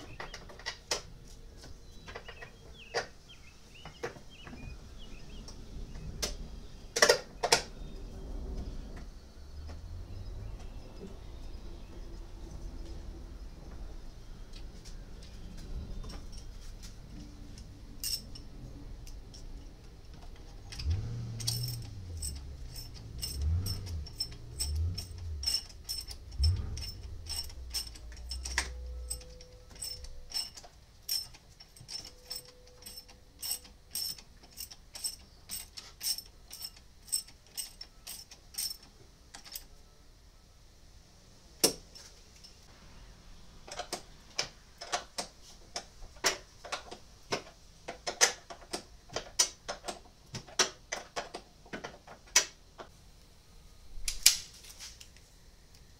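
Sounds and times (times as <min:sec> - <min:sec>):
low rumbling: 0:04.3 - 0:30.6
ratchet wrench clicking: 0:20.7 - 0:38.8.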